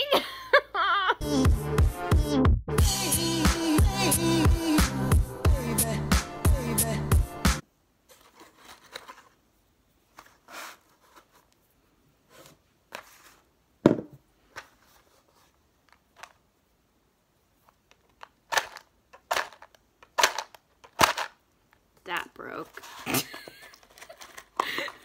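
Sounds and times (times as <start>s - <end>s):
handling scrapes: 8.1s - 9.4s, 10.1s - 13.6s, 22.5s - 24.6s.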